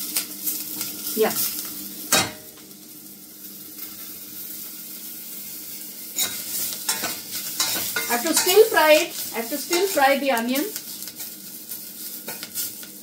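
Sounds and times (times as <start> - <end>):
onions sizzling in a pot: 0.0 - 13.0
spoon scraping against a pot: 6.2 - 10.0.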